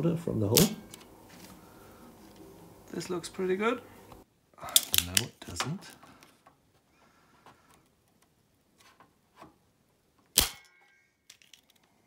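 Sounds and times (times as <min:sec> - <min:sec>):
short metallic ring: 0:10.5 - 0:11.2.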